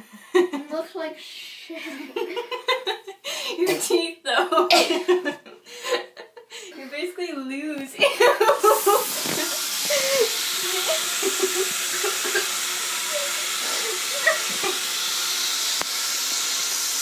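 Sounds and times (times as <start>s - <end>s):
tap running into sink: 9.0s - 10.5s.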